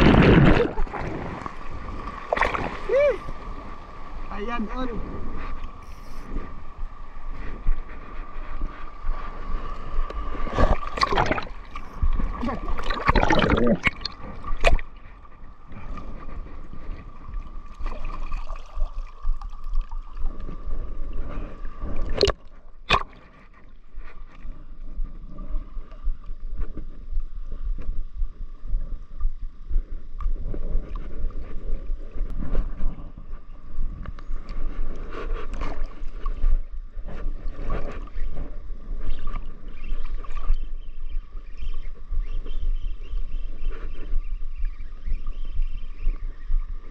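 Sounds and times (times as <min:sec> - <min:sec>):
sea water sloshing and splashing: 0:00.0 - 0:04.3, 0:10.2 - 0:15.4, 0:16.0 - 0:20.8
steady faint tone: 0:00.0 - 0:46.9.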